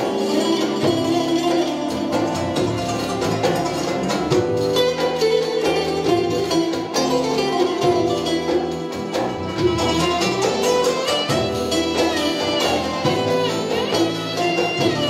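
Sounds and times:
hand percussion: 0:00.0 - 0:15.0
plucked string ensemble: 0:00.0 - 0:15.0
violin: 0:00.0 - 0:15.0
electric bass: 0:01.9 - 0:04.7.

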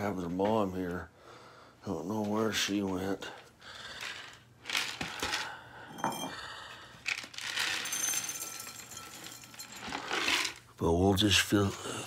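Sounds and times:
cat food bowls clinking: 0:07.1 - 0:10.6.

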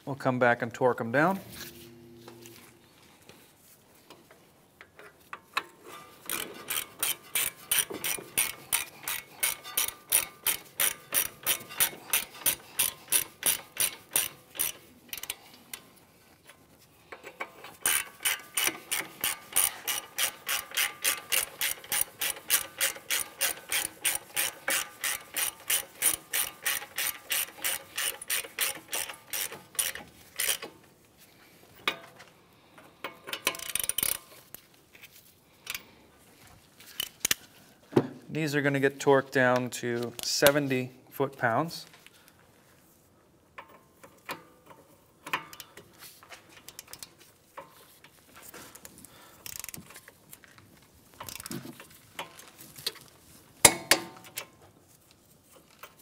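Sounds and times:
ratchet wrench clicking: 0:06.2 - 0:15.8, 0:17.2 - 0:30.7, 0:33.1 - 0:34.3, 0:49.4 - 0:49.9, 0:51.2 - 0:51.5.

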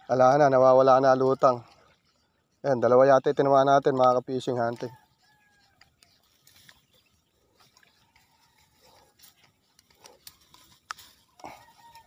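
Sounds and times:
faint clicks and rustles: 0:03.8 - 0:12.0.

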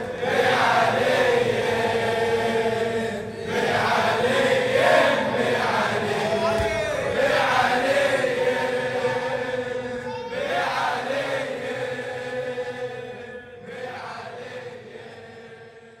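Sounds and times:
choir chanting a held chord: 0:00.0 - 0:16.0.

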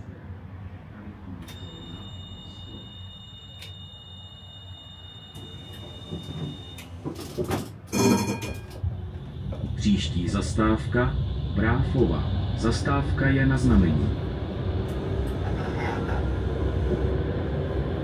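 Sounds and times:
tram rumbling: 0:00.0 - 0:18.0
loud ringing tone: 0:01.5 - 0:06.9, 0:07.9 - 0:09.5.

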